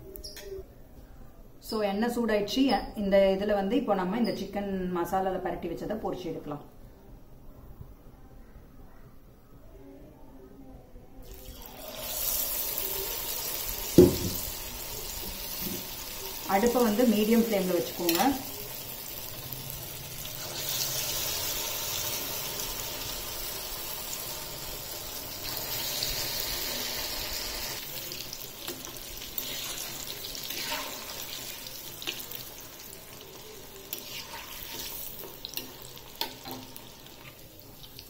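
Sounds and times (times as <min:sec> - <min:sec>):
chicken deep-frying in hot oil: 0:11.2 - 0:38.0.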